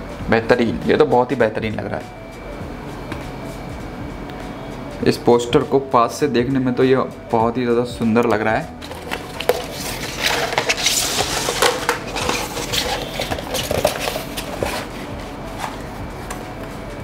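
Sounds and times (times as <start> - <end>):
paper rustling and crackling: 8.8 - 15.8.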